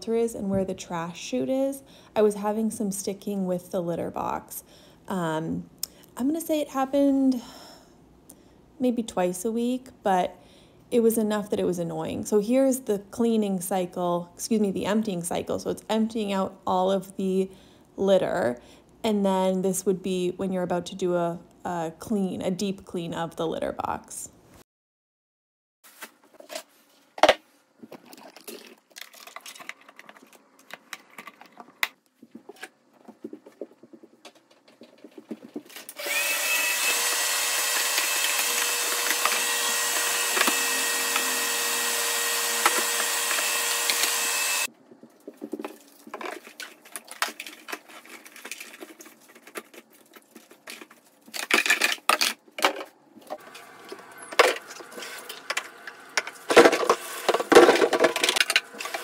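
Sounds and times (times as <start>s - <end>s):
vacuum cleaner whining: 36.0s - 44.7s, 53.4s - 59.0s.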